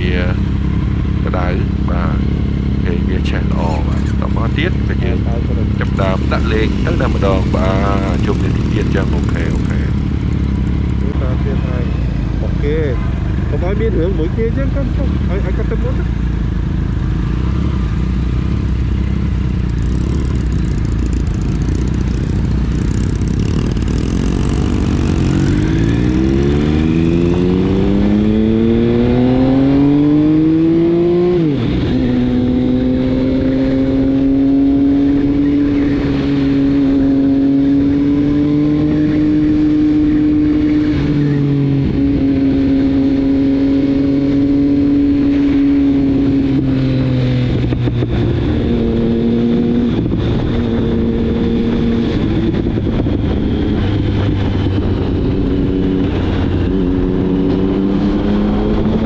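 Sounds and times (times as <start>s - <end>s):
motorcycle engine accelerating: 0.0s - 59.0s
wind noise: 18.7s - 59.0s.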